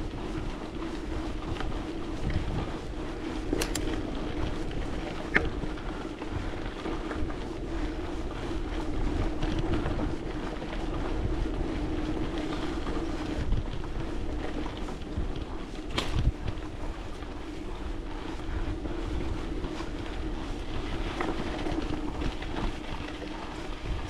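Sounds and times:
steady low drone: 0.0 - 24.0
wind buffeting microphone: 0.0 - 24.0
small sharp clicks: 3.5 - 4.0.

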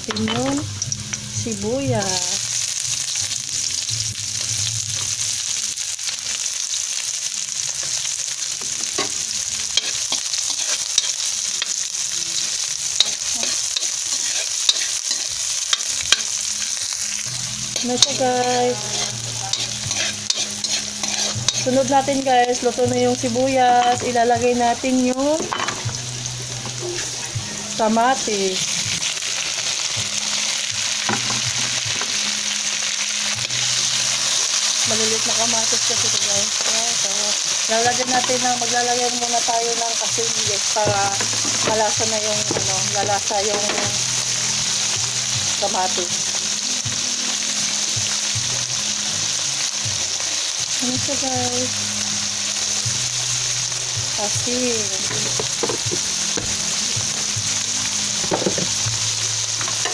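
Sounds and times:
onion sizzling in hot oil: 0.0 - 59.9
spatula scraping a pan: 9.8 - 11.8, 13.0 - 16.3, 17.8 - 21.9.

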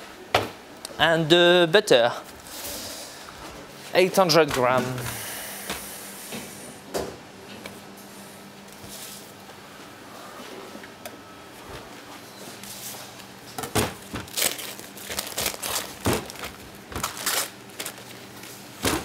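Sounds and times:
paper wrapper crinkling and tearing: 14.2 - 18.6.

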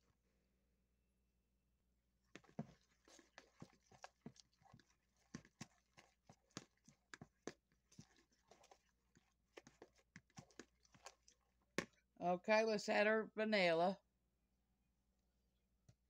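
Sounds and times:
fork whisking in a plastic bowl: 2.2 - 12.0.

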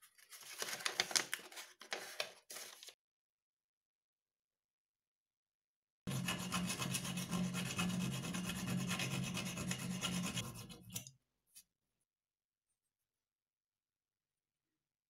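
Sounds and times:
file rasping on steel: 6.1 - 11.1.

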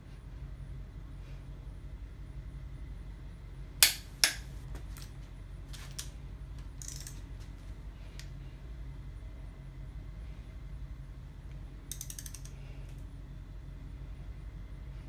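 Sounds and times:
metal socket clinks: 6.8 - 7.2, 11.9 - 12.6
torque wrench clicking: 11.9 - 12.6.

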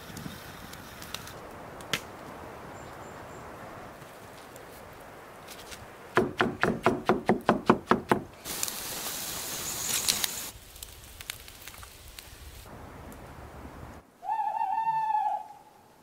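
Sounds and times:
sharp knocks: 6.2 - 8.3
hissing: 8.4 - 12.7.

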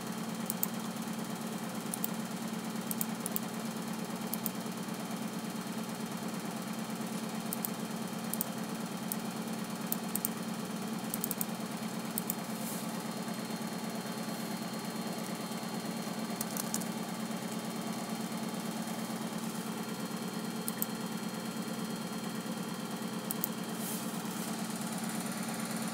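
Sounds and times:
low mechanical hum with flutter: 0.0 - 25.9
laptop clicks: 16.4 - 16.9.

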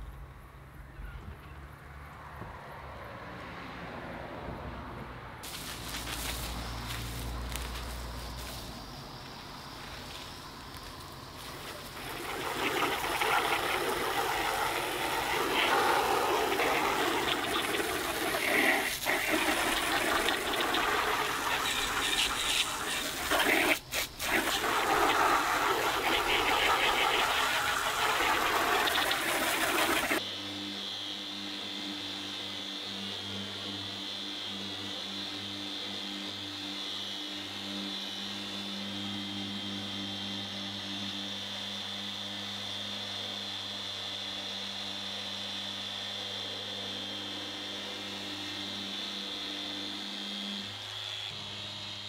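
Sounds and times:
hose nozzle spraying on metal siding: 12.1 - 30.2
electric sander humming: 25.9 - 52.0.

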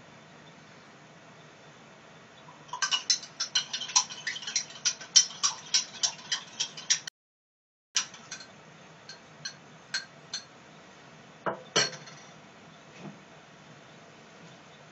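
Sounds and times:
metal spoon clinking against glass: 2.7 - 7.0.

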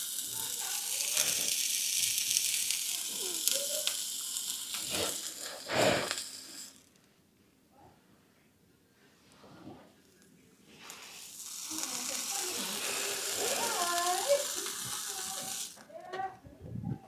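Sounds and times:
hot horseshoe sizzling on hoof: 0.0 - 7.1, 10.0 - 16.4.

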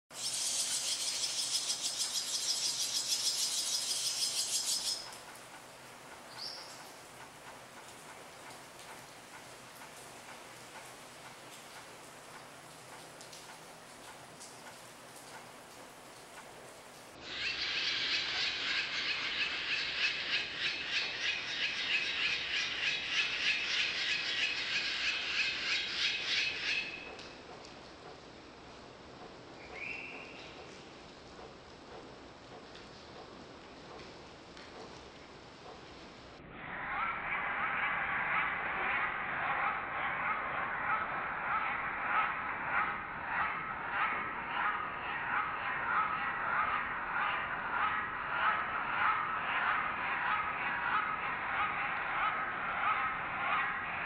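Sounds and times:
nestlings twittering chatter: 0.1 - 5.1.

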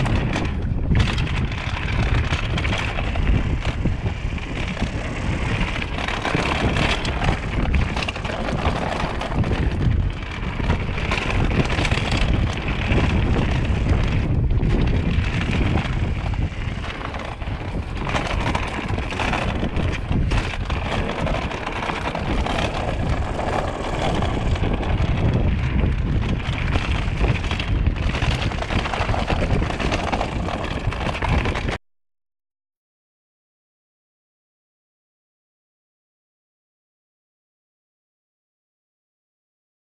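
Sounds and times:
bike clattering over rocks: 0.0 - 31.8
tyre noise: 0.0 - 31.8
wind buffeting microphone: 0.0 - 31.8.

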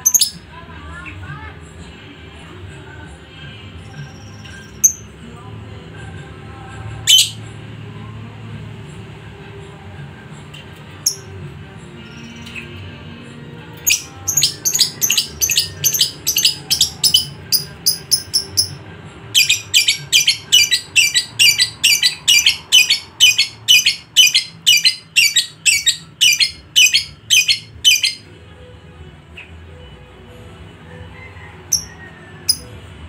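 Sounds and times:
lovebird chattering: 0.0 - 0.4, 13.8 - 18.8, 19.4 - 28.2, 32.5 - 32.7.

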